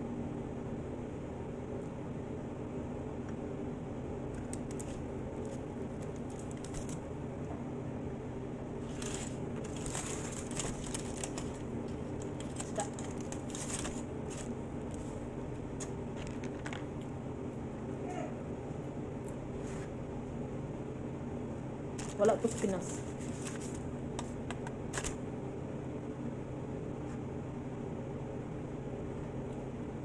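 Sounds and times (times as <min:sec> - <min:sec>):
steady fan hum: 0:00.0 - 0:30.0
aluminium foil crinkling: 0:04.4 - 0:07.1, 0:08.8 - 0:16.9, 0:22.0 - 0:25.2.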